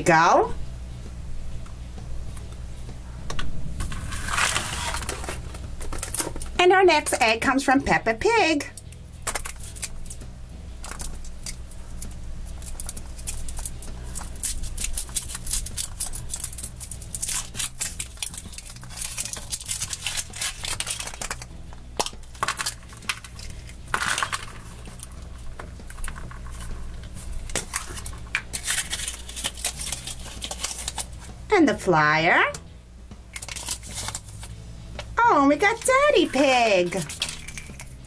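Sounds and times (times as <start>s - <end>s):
foil wrapper crinkling: 3.8s - 6.6s, 8.8s - 10.2s, 10.8s - 31.2s, 33.3s - 34.5s, 35.8s - 38.0s
chocolate shell cracking: 8.7s - 10.2s, 10.8s - 31.2s, 33.3s - 34.5s, 36.3s - 38.0s
plastic capsule twisted open: 8.7s - 10.2s, 10.8s - 26.8s, 27.4s - 31.2s, 33.3s - 34.5s, 37.0s - 38.0s.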